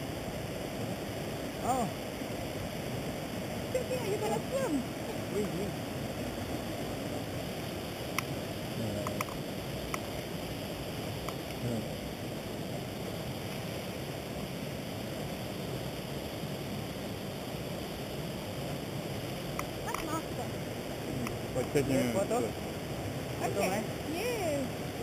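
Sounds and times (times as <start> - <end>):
stream flowing over rapids: 0.0 - 25.0
faint clicks: 9.0 - 10.3.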